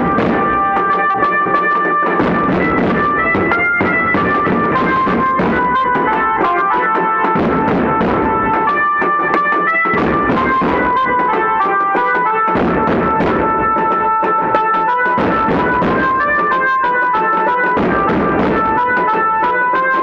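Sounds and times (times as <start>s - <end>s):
bass and snare drums: 0.0s - 20.0s
melody line: 0.0s - 20.0s.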